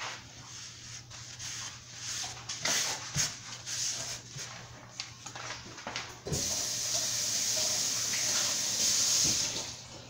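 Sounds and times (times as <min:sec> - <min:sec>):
water running into sink: 0:06.2 - 0:10.0.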